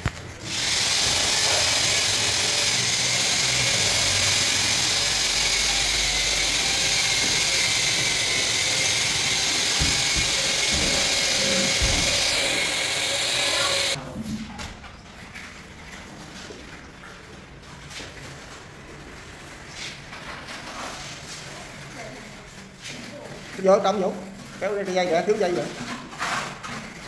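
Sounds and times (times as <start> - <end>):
power tool whining: 0.4 - 14.0.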